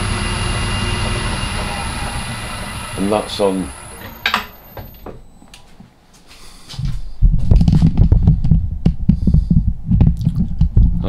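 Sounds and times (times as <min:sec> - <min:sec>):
faint motor whine: 0:00.0 - 0:05.7
camera handling rumbles and knocks: 0:07.4 - 0:11.0.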